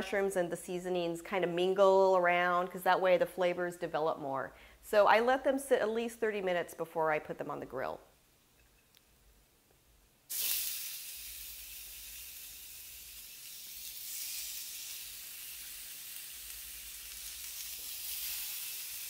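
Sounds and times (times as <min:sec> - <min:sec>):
burger patties sizzling on grill pan: 0:10.3 - 0:19.0.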